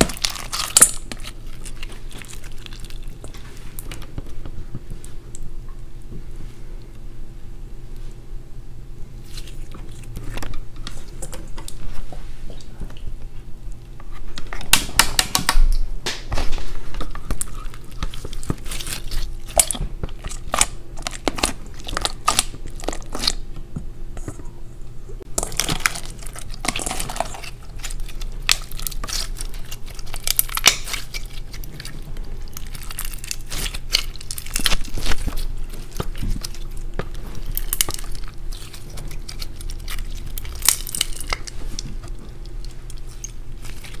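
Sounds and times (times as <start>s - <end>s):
slime squeezed wet crackling: 0.0s - 3.9s, 17.3s - 23.4s, 25.3s - 44.0s.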